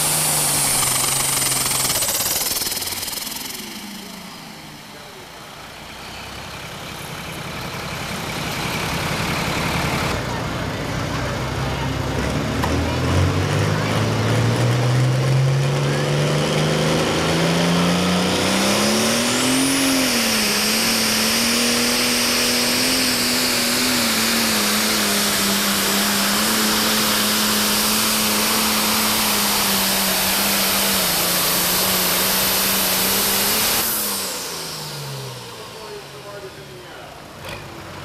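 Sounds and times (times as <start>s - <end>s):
high hissing rush: 0.0s - 5.4s, 18.2s - 37.0s
diesel engine under full load: 0.0s - 38.0s.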